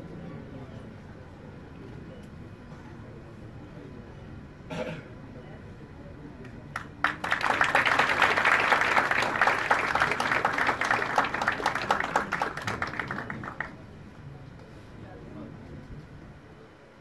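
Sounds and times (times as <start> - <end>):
audience applauding: 6.7 - 13.8.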